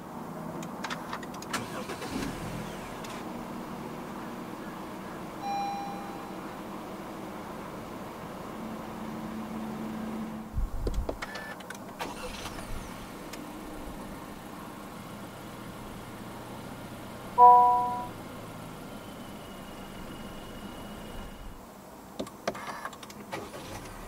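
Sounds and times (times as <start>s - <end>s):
low hum inside a car: 1.6s - 9.2s, 17.3s - 22.2s
dashboard chime: 5.4s - 6.4s, 17.4s - 18.1s.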